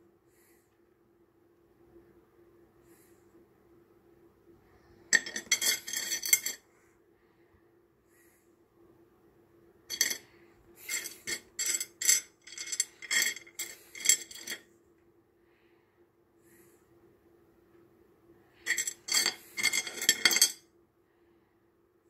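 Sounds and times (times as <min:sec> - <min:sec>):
faint steady hum: 0:00.0 - 0:22.0
stones clinking in a wet dish: 0:05.2 - 0:06.6, 0:09.9 - 0:10.2, 0:18.7 - 0:20.6.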